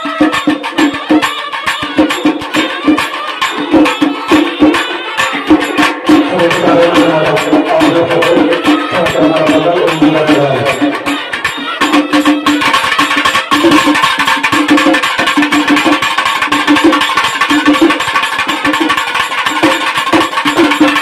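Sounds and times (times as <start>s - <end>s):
fast drumming: 0.0s - 21.0s
reed pipes and brass horns: 6.3s - 12.8s.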